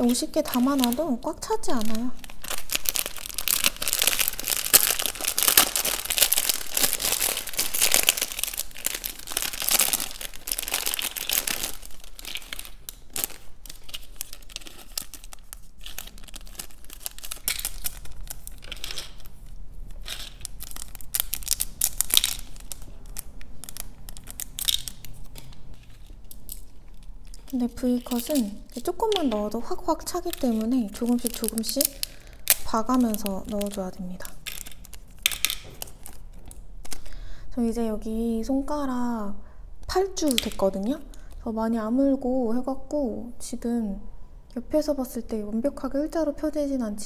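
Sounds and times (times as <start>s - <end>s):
plastic packets crinkling: 0.0s - 37.2s, 40.1s - 41.4s.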